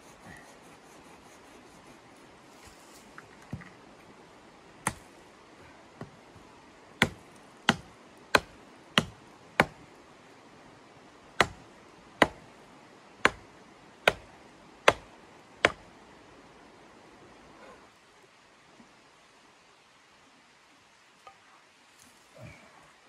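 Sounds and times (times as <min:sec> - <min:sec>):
hatchet chopping wood: 0:04.8 - 0:05.0, 0:07.0 - 0:09.8, 0:11.4 - 0:11.6, 0:12.2 - 0:12.4, 0:13.2 - 0:15.8.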